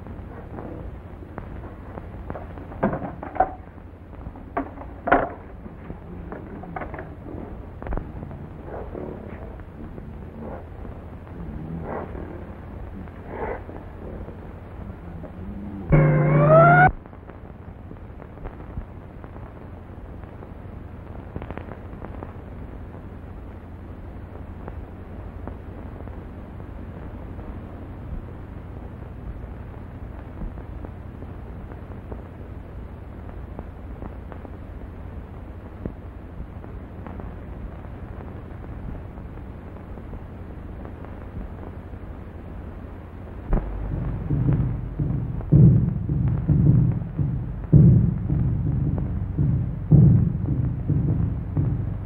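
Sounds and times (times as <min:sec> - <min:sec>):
faint clicks and crackles: 0:00.0 - 0:16.0, 0:16.9 - 0:52.0
film soundtrack hiss and hum: 0:00.0 - 0:52.0
sustained music chord: 0:15.6 - 0:17.0.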